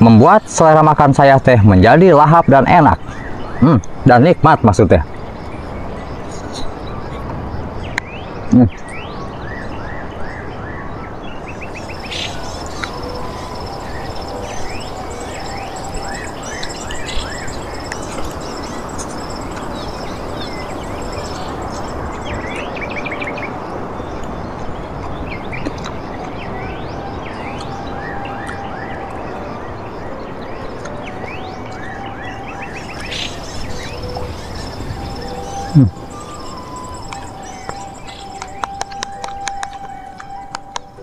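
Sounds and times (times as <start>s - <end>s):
birds chirping and calling: 11.4s - 23.2s, 31.3s - 39.2s.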